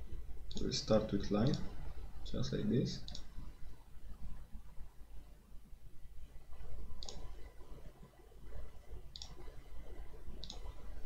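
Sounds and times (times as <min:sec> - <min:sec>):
computer mouse clicks: 0:00.5 - 0:00.7, 0:03.0 - 0:03.4, 0:07.0 - 0:07.4, 0:09.1 - 0:09.5, 0:10.4 - 0:10.9.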